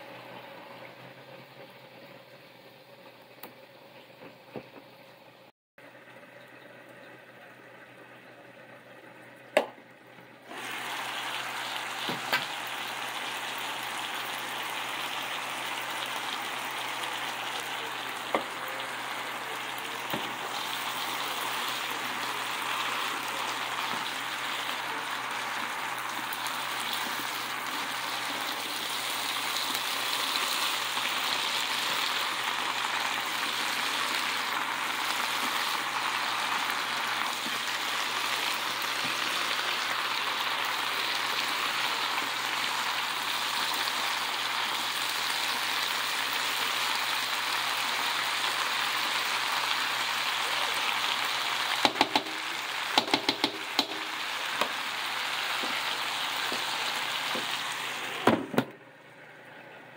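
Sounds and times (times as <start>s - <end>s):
vegetables sizzling in pan: 10.4s - 58.3s.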